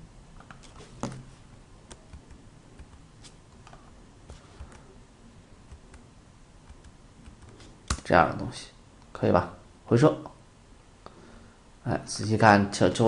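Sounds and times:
keyboard keystrokes and clicks: 1.9s - 3.0s, 6.6s - 8.0s.

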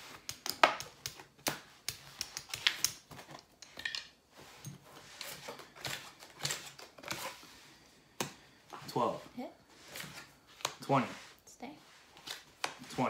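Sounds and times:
cards and chips clicking: 0.1s - 4.2s.

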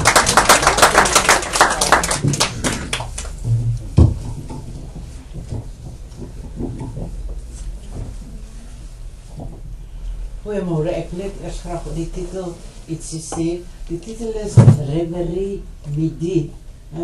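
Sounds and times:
audience applause: 0.0s - 3.4s
loud thump: 3.5s - 7.1s.

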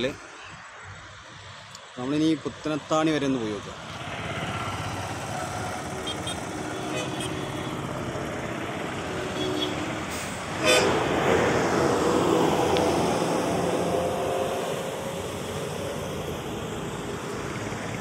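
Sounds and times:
road traffic passing: 0.0s - 18.0s
vehicle passing close: 3.9s - 18.0s
vehicle horn honk: 6.0s - 7.8s, 9.3s - 9.8s, 10.6s - 11.0s
vehicle horn tooting: 6.0s - 7.8s, 9.3s - 9.9s, 10.6s - 11.0s.

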